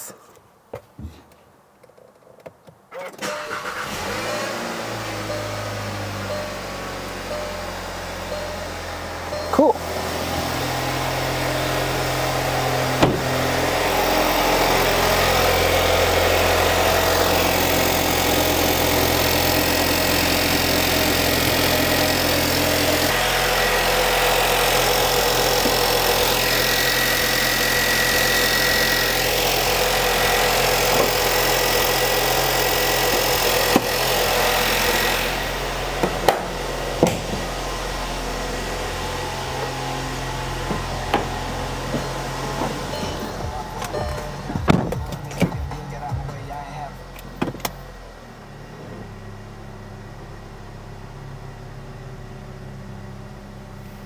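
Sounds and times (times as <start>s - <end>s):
car engine idling: 3.3s - 54.0s
car hood shutting: 12.8s - 14.2s, 33.1s - 34.2s, 36.0s - 37.5s, 40.6s - 45.8s, 47.2s - 47.8s.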